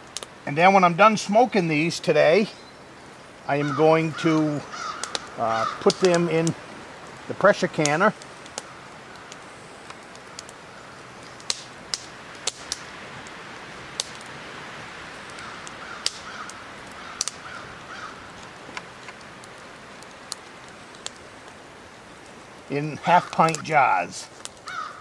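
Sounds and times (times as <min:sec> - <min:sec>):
crow cawing: 0:03.6 - 0:06.1, 0:15.3 - 0:18.4, 0:23.0 - 0:23.6, 0:24.6 - 0:25.0.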